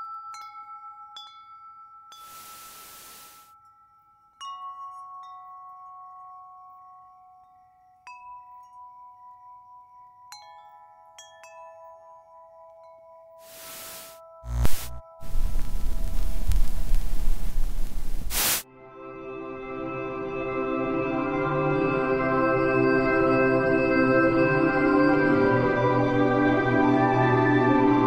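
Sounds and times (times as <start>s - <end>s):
static hiss burst: 2.3s - 3.5s, 13.4s - 18.6s.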